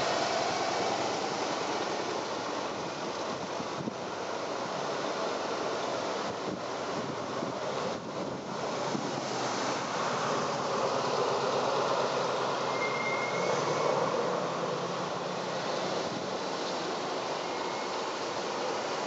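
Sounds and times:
faint high squeak: 12.7 - 14.0.

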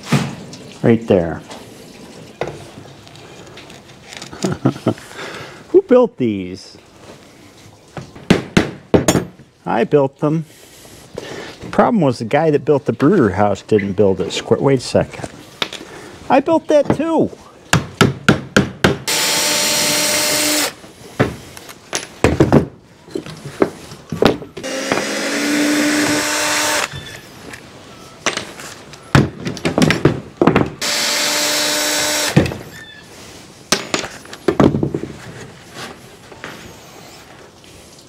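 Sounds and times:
power drill running: 19.1 - 20.8, 24.6 - 27.0, 30.8 - 32.5
knocks and clatter: 29.2 - 30.8.

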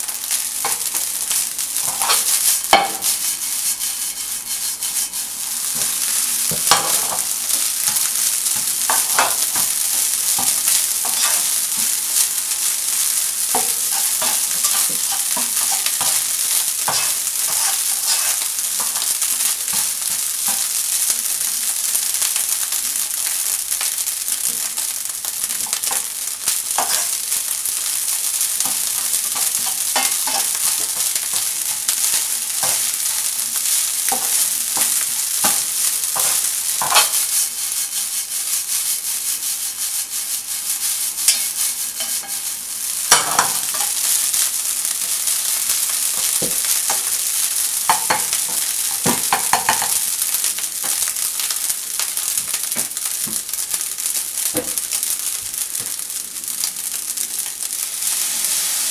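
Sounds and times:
rice sizzling in a frying pan: 0.0 - 58.9
spatula scraping and tapping pan: 0.6 - 21.0, 25.6 - 27.4, 28.0 - 44.2, 45.0 - 53.5.

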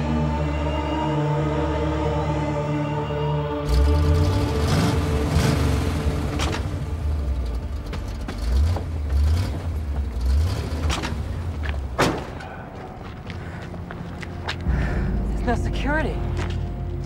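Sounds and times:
van engine rumbling: 3.6 - 17.0
van doors clunking open: 10.8 - 12.8.

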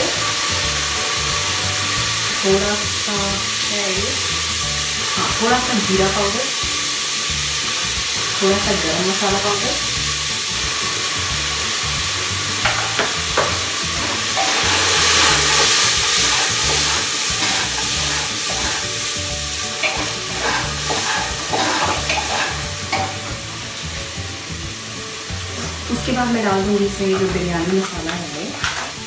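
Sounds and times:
vegetables sizzling in oil: 0.0 - 29.0.

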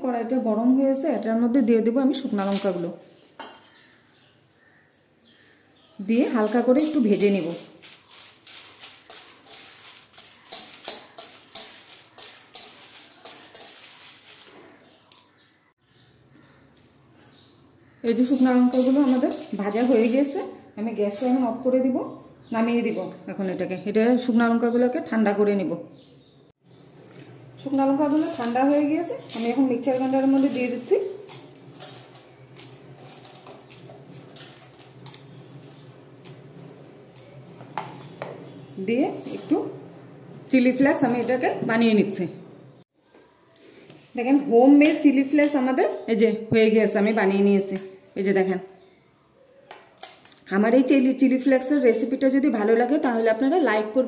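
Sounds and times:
chillies rustling: 1.8 - 15.6, 17.9 - 21.8, 27.1 - 42.2
spatula scraping metal pan: 6.2 - 15.0, 18.1 - 20.5, 28.0 - 39.8
fingers brushing metal plate: 6.4 - 14.8.

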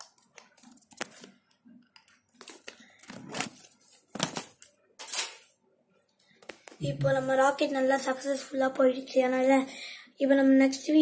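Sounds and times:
paper rustling and crinkling: 0.0 - 1.5, 2.1 - 5.5.

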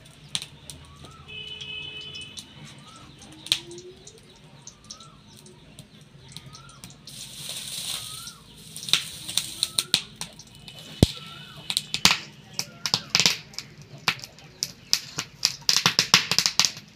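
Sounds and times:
oil crackling and spitting: 0.0 - 16.9
bird calling: 0.8 - 5.5, 6.2 - 7.0, 7.8 - 11.7.

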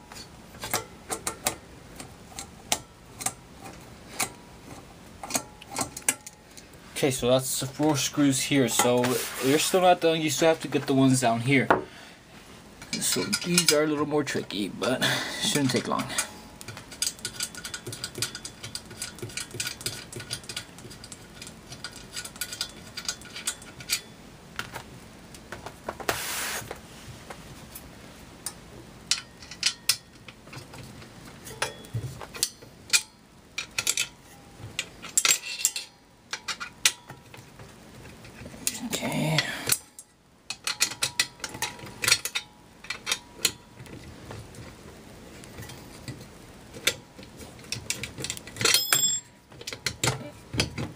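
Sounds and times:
metallic clicks of tool on screws: 5.2 - 6.4, 15.5 - 24.1, 28.4 - 30.6, 31.5 - 34.2, 34.8 - 37.2, 39.4 - 43.6
brief rubbing sounds: 9.0 - 9.8, 26.1 - 26.8.

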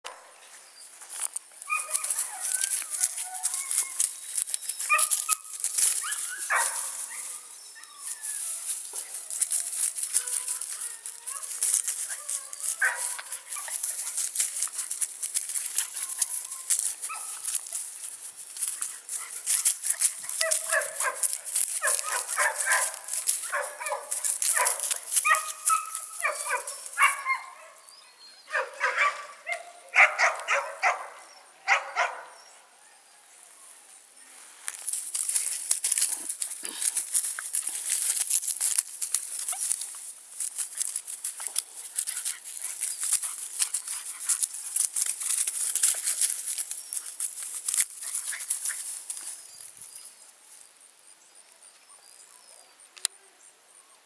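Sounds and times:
dry leaves rustling: 0.3 - 27.8, 34.2 - 50.6
puppy whining and yipping: 1.7 - 14.0, 15.6 - 17.8.

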